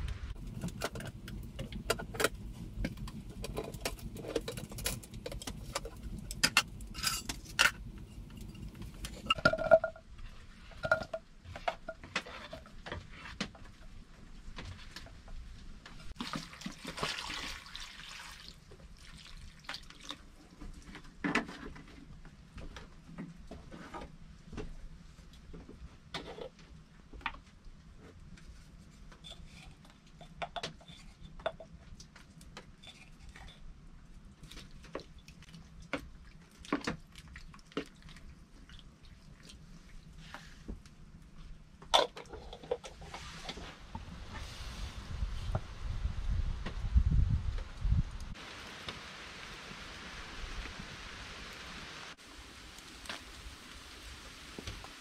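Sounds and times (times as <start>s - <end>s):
metal pot and utensils clinking: 3.4s - 10.0s
water pouring into pot: 16.2s - 20.2s.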